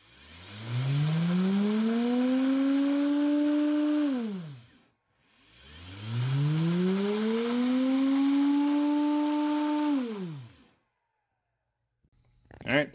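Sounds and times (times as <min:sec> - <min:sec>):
washing machine motor whining: 0:00.0 - 0:04.8, 0:05.6 - 0:10.7.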